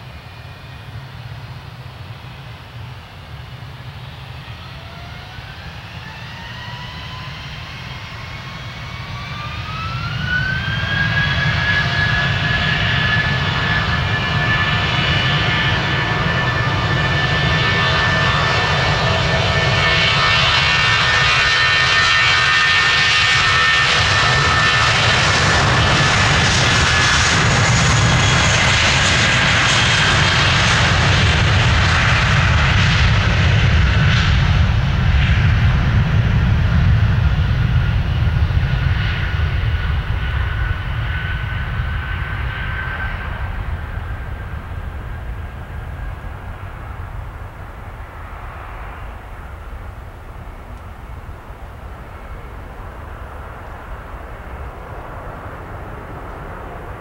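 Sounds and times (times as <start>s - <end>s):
jet engines at takeoff thrust: 0.0s - 57.0s.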